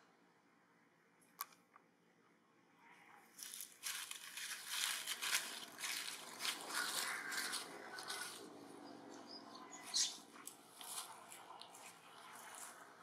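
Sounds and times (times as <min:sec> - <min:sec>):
loud irregular rustling: 0:03.4 - 0:08.6.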